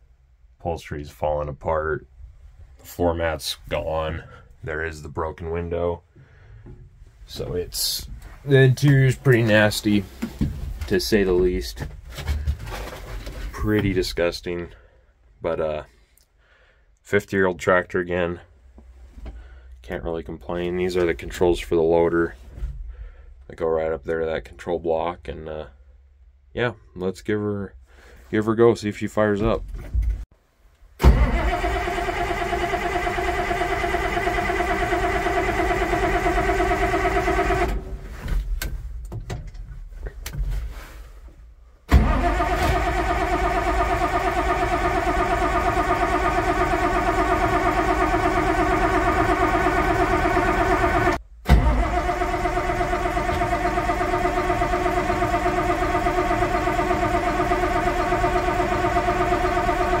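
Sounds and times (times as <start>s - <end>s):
irregular engine clatter: 31.0s - 37.9s, 41.9s - 60.0s
tractor diesel engine running: 31.0s - 38.2s, 41.9s - 60.0s.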